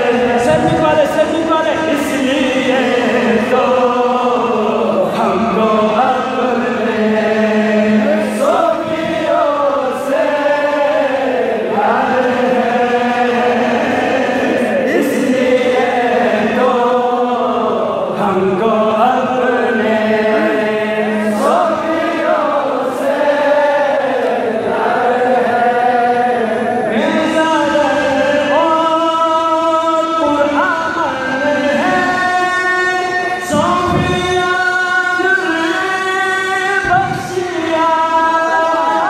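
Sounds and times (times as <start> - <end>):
man singing in chanting style: 0.0 - 39.0.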